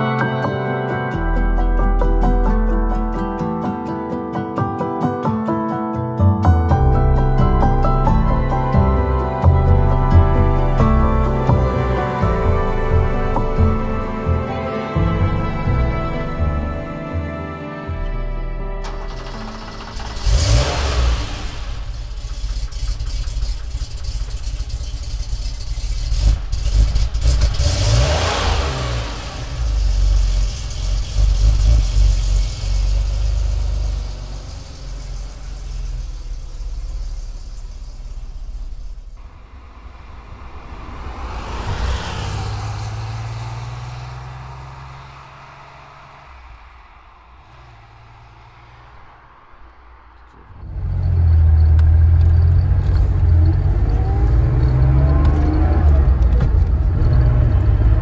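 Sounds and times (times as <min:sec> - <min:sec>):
car engine revving: 0:18.8 - 0:58.0
car passing by: 0:27.6 - 0:58.0.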